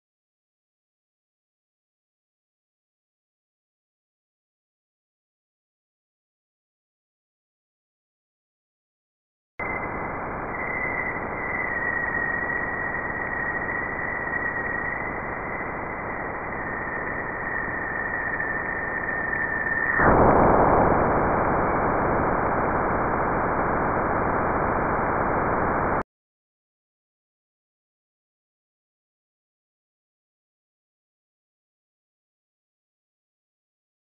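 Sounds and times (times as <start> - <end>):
steady hiss: 9.9 - 26.0.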